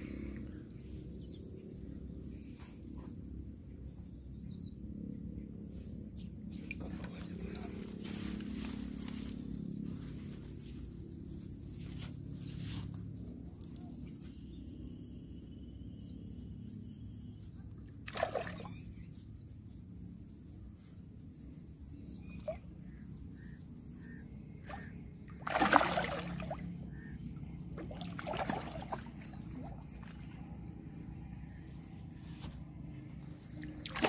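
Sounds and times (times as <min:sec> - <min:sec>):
fish splashing in water: 0:18.0 - 0:18.8, 0:25.4 - 0:26.7, 0:27.8 - 0:29.8, 0:33.8 - 0:34.0.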